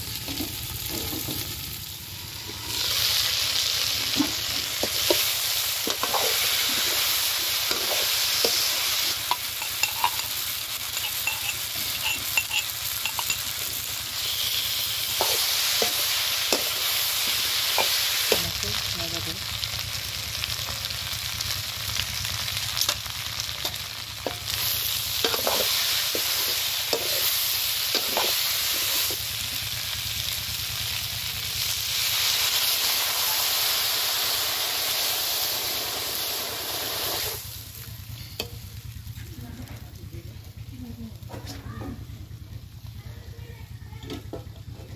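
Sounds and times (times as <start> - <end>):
food sizzling in a pan: 0.0 - 43.0
metal ladle scraping a pan: 5.9 - 7.1, 7.7 - 13.6, 24.5 - 29.1.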